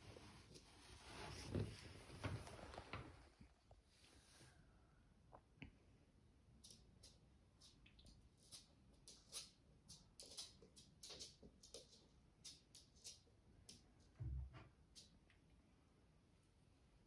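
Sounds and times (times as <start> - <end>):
parrot claws clicking on floor: 6.6 - 13.8.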